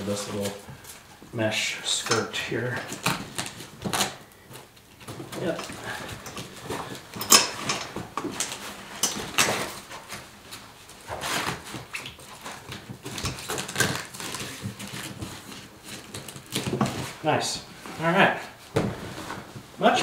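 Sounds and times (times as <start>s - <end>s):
velcro strips rasping: 13.3s - 16.7s.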